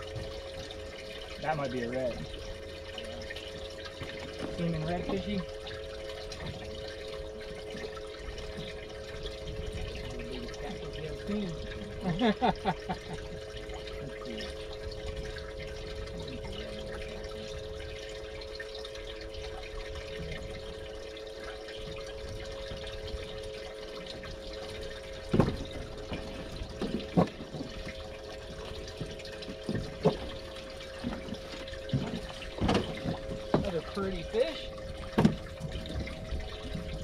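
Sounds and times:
pump humming: 0:00.0 - 0:37.0
water circulating: 0:00.0 - 0:37.0.

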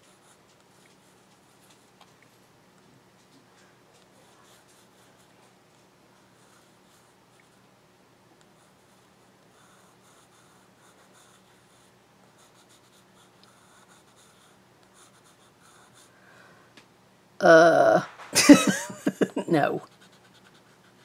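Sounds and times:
brush scratching on paper: 0:19.8 - 0:21.0.

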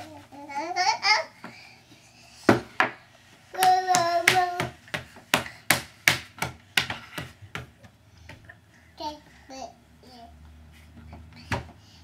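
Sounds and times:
hands slapping wooden tabletop: 0:03.6 - 0:07.8.

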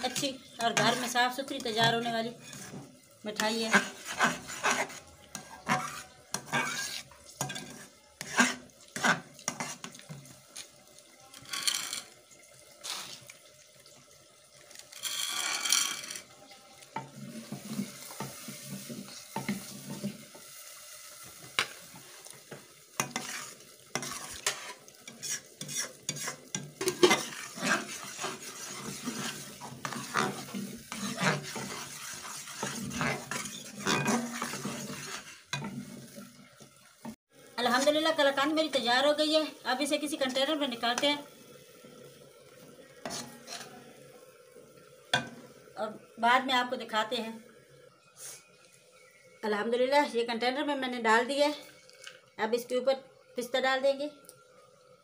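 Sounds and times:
metal turner scraping a pan: 0:00.0 - 0:10.7, 0:11.3 - 0:12.2, 0:14.8 - 0:20.5, 0:21.3 - 0:38.0, 0:43.0 - 0:43.9
mixture sizzling and bubbling: 0:00.0 - 0:55.0.

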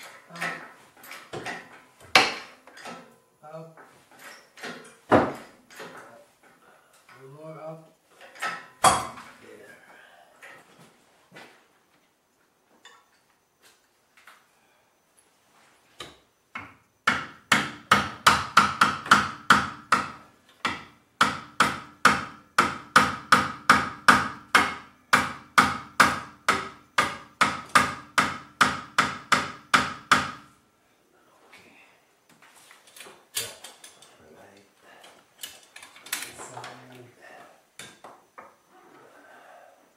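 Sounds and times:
hammer striking metal: 0:17.1 - 0:30.4.

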